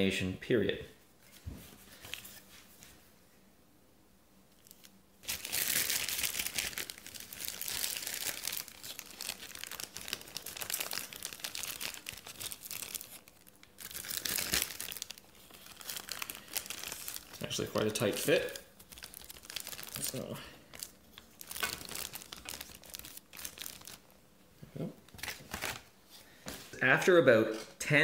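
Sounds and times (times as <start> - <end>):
plastic bag crinkling: 4.6 - 24.2.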